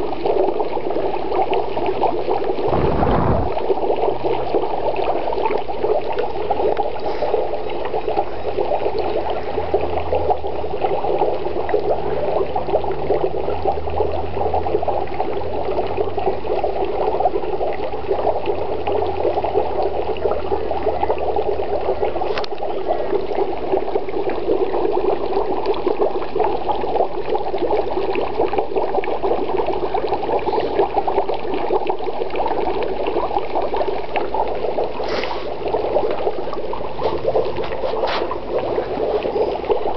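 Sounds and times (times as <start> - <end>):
dry ice bubbling in water: 0.0 - 39.9.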